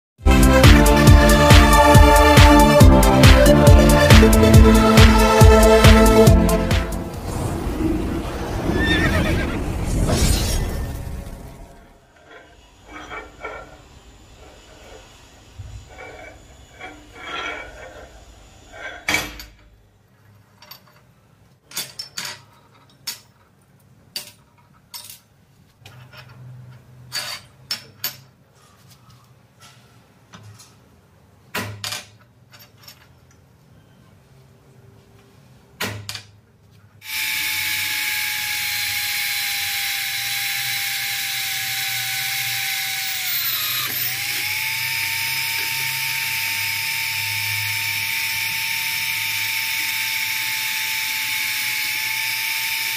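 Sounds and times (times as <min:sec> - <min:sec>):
tools clinking on metal bench: 0:21.7 - 0:23.4
drill press whining: 0:37.0 - 0:52.9.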